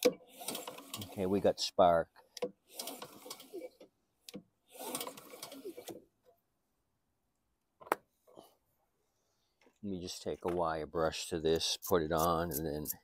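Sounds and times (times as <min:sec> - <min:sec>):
recoil starter whirring and ratcheting: 0:00.0 - 0:01.3, 0:02.4 - 0:06.0.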